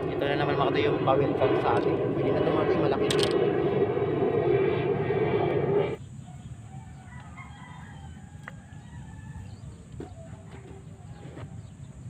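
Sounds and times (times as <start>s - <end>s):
loud engine drone: 0.0s - 6.0s
distant rooster crowing: 6.2s - 11.5s.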